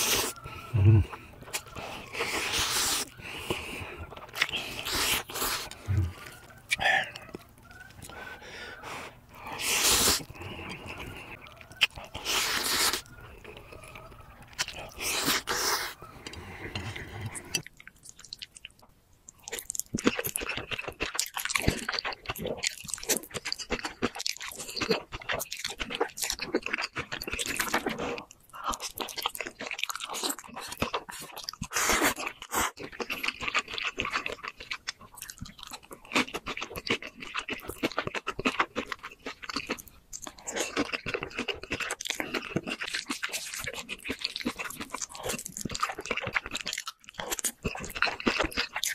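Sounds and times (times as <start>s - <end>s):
wet chewing and crunching: 0.0s - 48.9s
loud noodle slurps: 9.6s - 10.3s.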